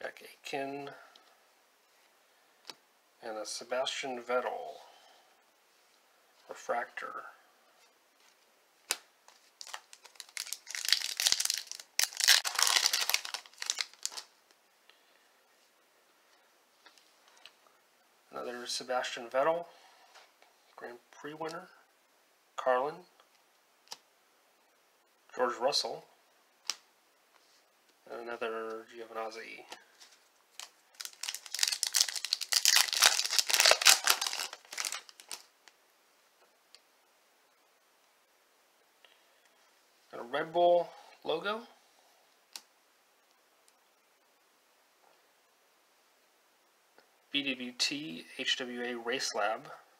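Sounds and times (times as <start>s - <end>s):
foil wrapper tearing and crinkling: 9.4s - 14.3s, 30.6s - 35.5s.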